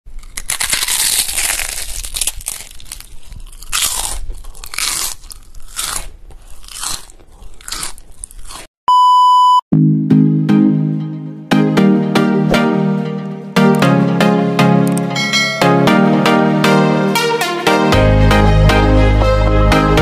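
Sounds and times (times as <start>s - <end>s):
crunchy food being chewed: 0.1s - 8.7s
high beep: 8.9s - 9.6s, 15.2s - 16.0s.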